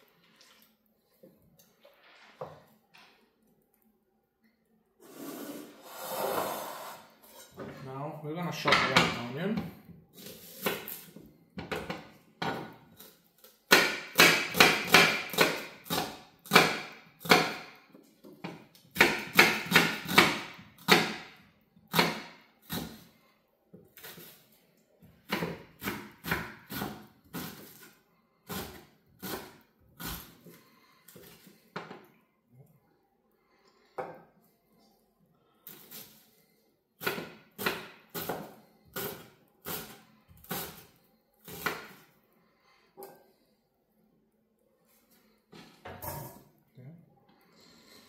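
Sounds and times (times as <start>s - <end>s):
knife chopping on wooden board: 13.7s - 17.7s, 18.9s - 23.0s.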